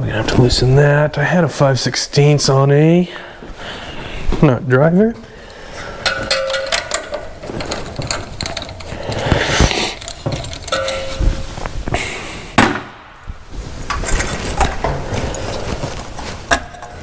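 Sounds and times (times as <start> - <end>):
metal tools clinking: 5.5 - 11.8, 13.9 - 17.0
struck metal ringing: 5.8 - 8.8, 10.1 - 11.6.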